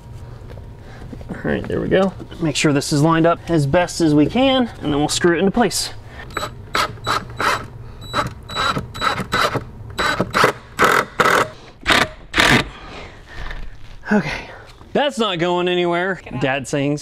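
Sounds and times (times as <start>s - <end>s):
power driver driving screws: 6.3s - 12.7s.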